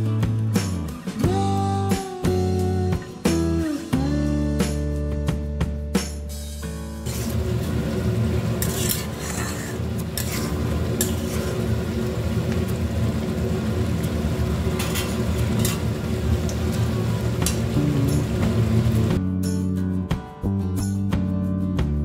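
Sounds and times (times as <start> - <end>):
metal spatula scraping pan: 7.1 - 7.5, 8.4 - 11.8, 14.8 - 16.0
gravy simmering: 7.1 - 19.2.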